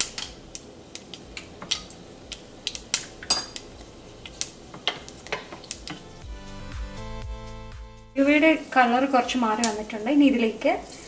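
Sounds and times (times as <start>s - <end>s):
seeds popping in hot oil: 0.0s - 6.2s, 8.5s - 11.0s.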